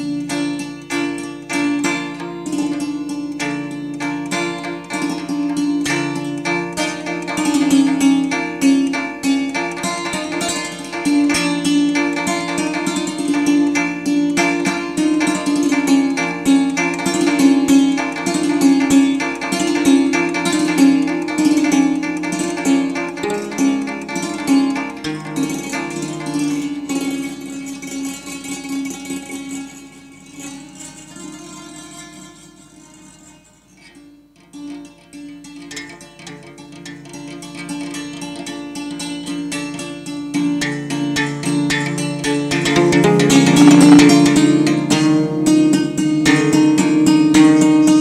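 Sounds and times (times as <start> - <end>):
hammered dulcimer strikes: 42.6 - 47.2.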